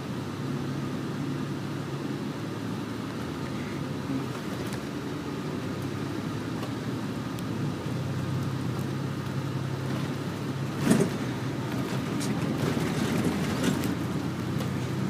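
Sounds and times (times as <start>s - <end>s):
coach engine drone: 0.0s - 15.0s
road noise: 0.0s - 15.0s.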